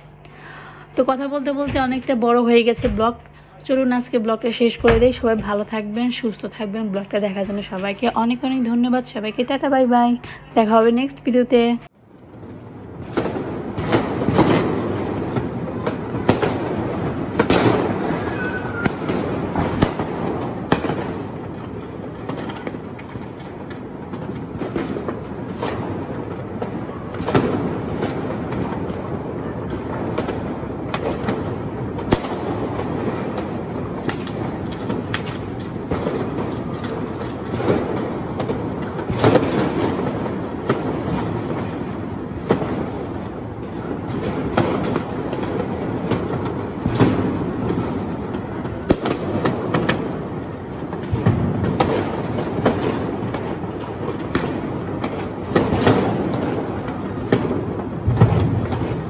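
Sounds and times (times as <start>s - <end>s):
rumble of distant fireworks: 0.0s - 59.0s
sharp firecracker cracks: 15.8s - 26.1s, 32.0s - 41.4s, 48.8s - 50.1s, 51.0s - 59.0s.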